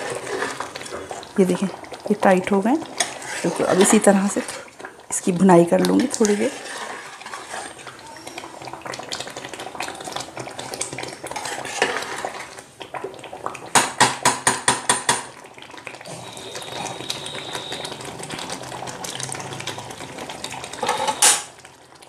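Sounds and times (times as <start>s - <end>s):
metal spoon scraping a pot: 2.9s - 4.6s, 5.9s - 8.0s, 11.3s - 12.5s
metal clacking on pot: 13.7s - 15.3s.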